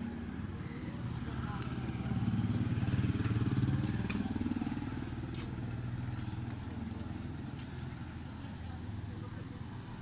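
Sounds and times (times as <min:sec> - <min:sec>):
small motorcycle engine passing: 0:00.3 - 0:08.0.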